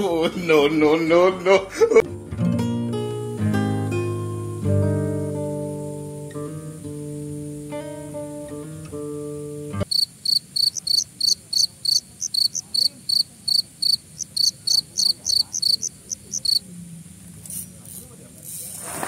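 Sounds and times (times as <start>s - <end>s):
acoustic guitar music: 0.5s - 9.9s
cricket chirping: 3.2s - 18.6s.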